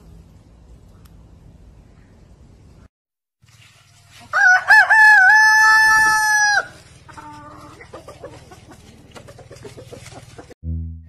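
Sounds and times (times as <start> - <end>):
rooster crowing: 4.3 - 6.8.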